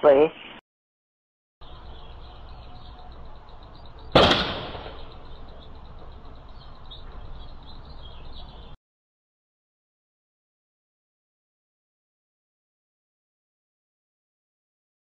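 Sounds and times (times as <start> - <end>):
distant rifle shot with echo: 4.0 - 5.5.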